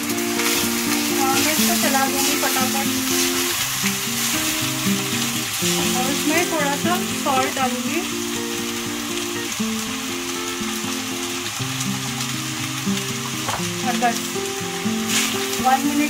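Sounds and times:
rice and vegetables sizzling: 0.0 - 16.0.

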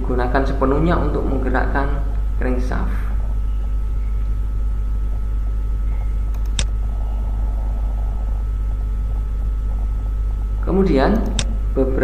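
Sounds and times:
steady low hum: 0.0 - 12.0
sharp click: 5.9 - 6.8, 11.1 - 11.6.

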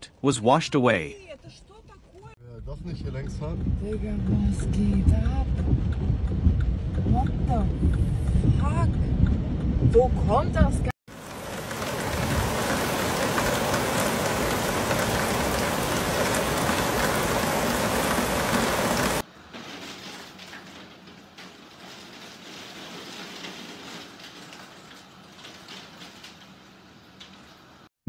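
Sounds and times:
heavy rain pouring: 11.1 - 27.9.

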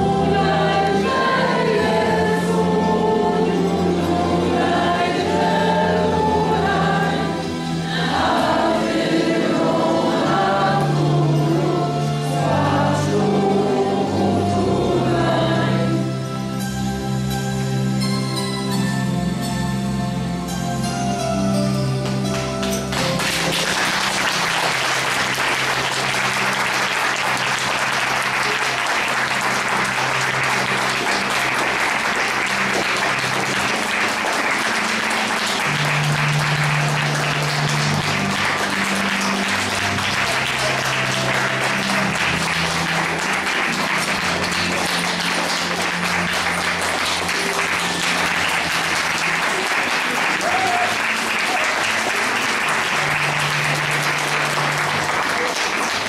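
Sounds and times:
audience applauding: 7.8 - 10.6, 22.0 - 56.0.

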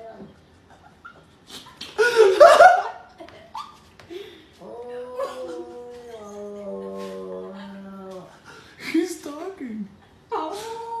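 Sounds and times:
person laughing loudly: 1.9 - 3.0.

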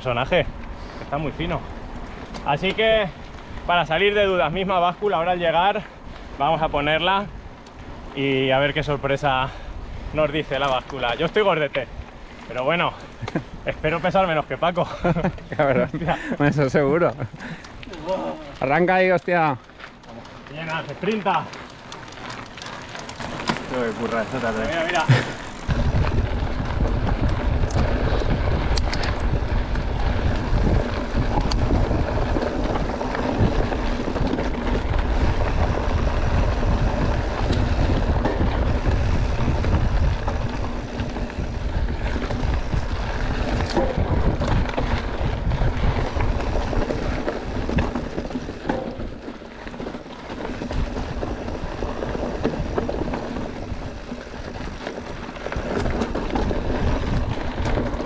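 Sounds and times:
bike rattling over rocks: 1.2 - 58.0
wind buffeting microphone: 20.9 - 58.0.

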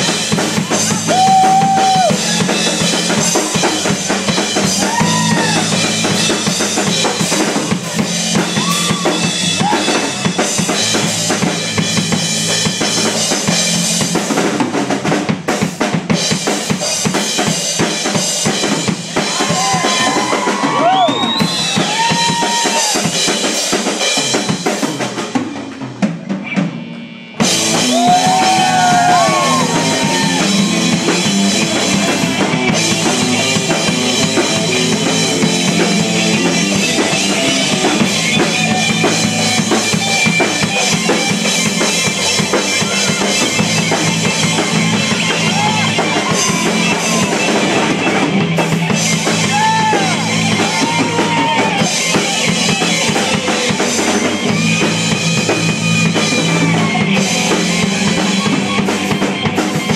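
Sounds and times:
drums: 0.0 - 59.9
heavy metal band playing: 0.0 - 59.9.

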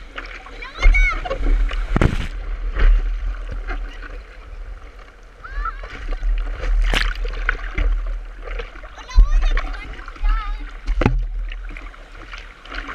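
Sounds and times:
whitewater splashing: 0.0 - 12.9
sharp splashes: 5.4 - 12.9.

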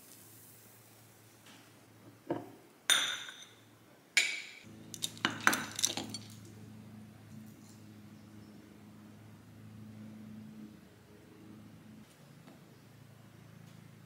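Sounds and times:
glass mug clinking on saucer: 2.3 - 3.6.

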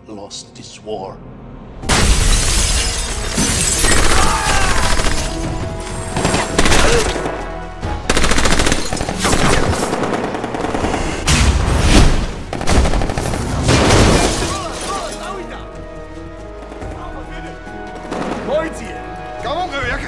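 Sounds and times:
gunshots: 6.1 - 7.4, 8.1 - 14.7.

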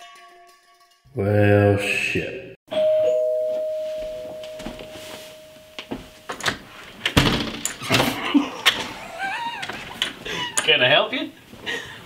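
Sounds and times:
two-note doorbell chime: 2.7 - 6.4.

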